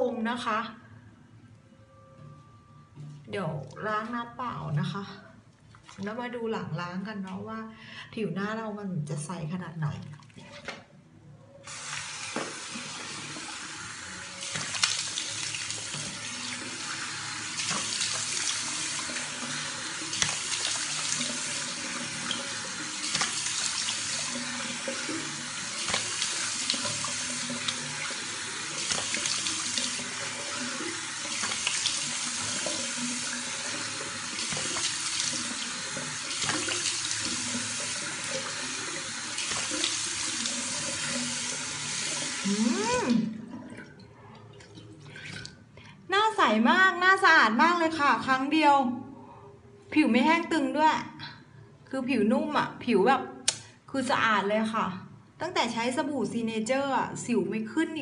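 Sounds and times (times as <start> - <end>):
tap water running into sink: 11.7 - 45.6
hands splashing water: 14.4 - 16.8, 17.5 - 42.3.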